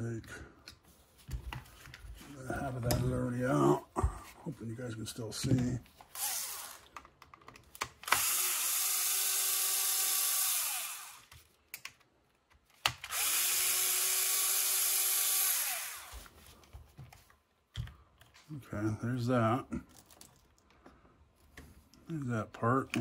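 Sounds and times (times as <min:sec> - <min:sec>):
power screwdriver whining: 0:06.1 - 0:07.0, 0:08.0 - 0:11.3, 0:12.9 - 0:16.3.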